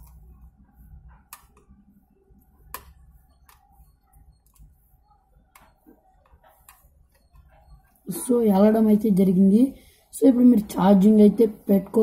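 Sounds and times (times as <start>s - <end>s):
faint plastic clicks and taps: 0.0s - 8.0s.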